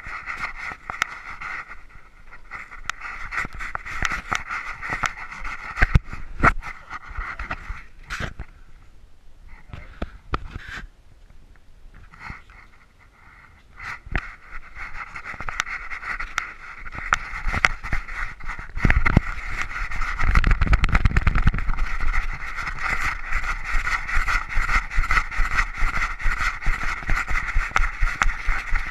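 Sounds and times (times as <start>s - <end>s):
wind rumble on microphone: 0.0s - 8.9s, 13.6s - 28.9s
steady rushing noise: 12.5s - 28.9s
camera knocking while bouncing: 18.7s - 28.9s.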